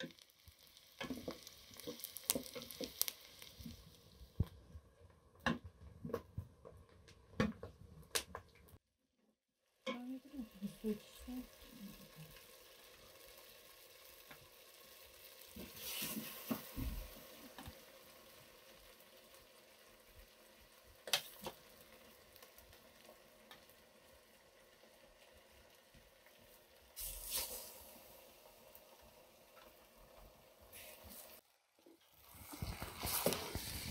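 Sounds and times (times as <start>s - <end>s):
chicken sizzling in oil: 0.0s - 4.6s, 9.7s - 33.9s.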